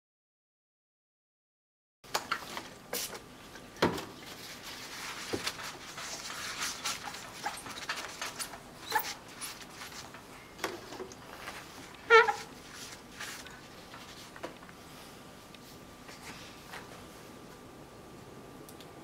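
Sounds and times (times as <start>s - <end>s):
tissue rubbing on glass: 4.2s - 10.3s, 11.2s - 14.4s
tissue squeaking on glass: 5.8s - 10.2s, 11.4s - 13.5s.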